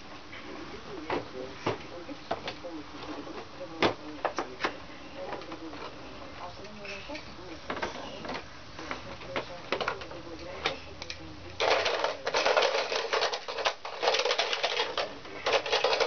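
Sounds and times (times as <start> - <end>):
plastic toy car rattling: 11.6 - 16.0.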